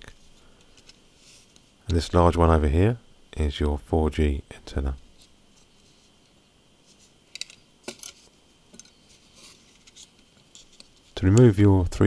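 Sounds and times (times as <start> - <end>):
faint clicks of phone parts handled: 7.3 - 9.0, 9.7 - 11.5.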